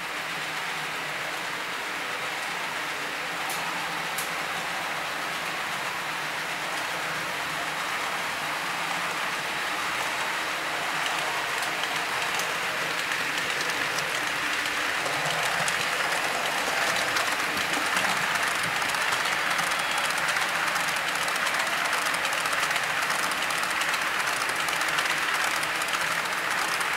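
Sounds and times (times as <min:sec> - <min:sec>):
model train wheels rattling on rails: 0:00.3 - 0:26.9.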